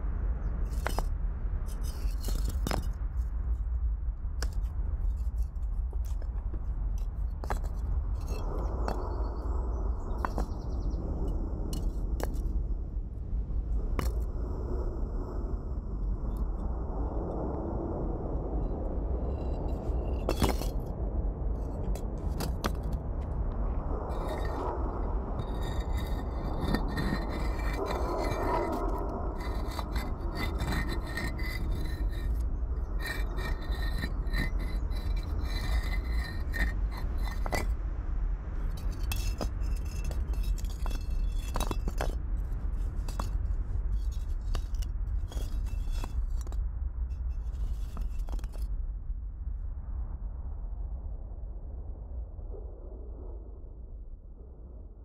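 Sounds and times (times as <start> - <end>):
steady low rumble: 0.0 - 55.0
hard objects scraping: 19.4 - 20.9, 21.8 - 23.0, 24.1 - 37.8, 38.6 - 43.4, 44.0 - 46.5.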